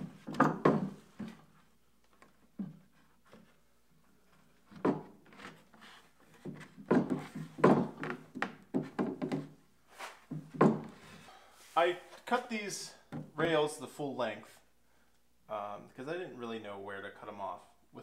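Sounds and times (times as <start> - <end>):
wooden knocks and rubs: 0.0 - 11.2.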